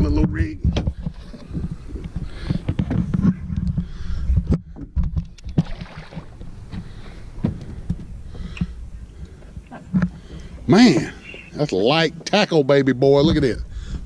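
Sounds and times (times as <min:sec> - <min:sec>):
knocks and clunks on boat: 0:00.0 - 0:08.8, 0:09.4 - 0:12.4
wind rumbling on microphone: 0:00.0 - 0:12.4, 0:13.0 - 0:14.0
water swirling and splashing: 0:05.5 - 0:06.6.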